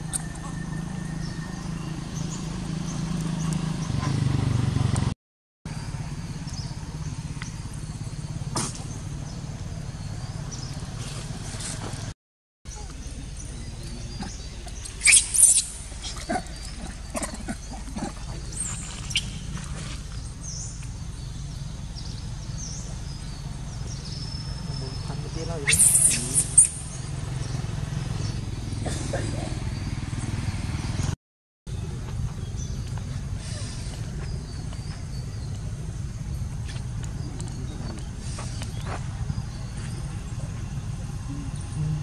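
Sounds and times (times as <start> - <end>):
low outdoor rumble: 5.7 - 42.0
monkey sharp calls: 14.1 - 19.6, 25.4 - 27.2
monkeys squealing: 14.1 - 19.6, 25.6 - 27.0.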